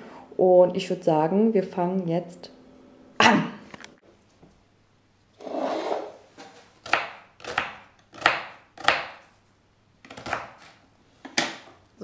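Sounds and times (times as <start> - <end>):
knife chopping onion on board: 6.8 - 9.3, 10.0 - 11.6.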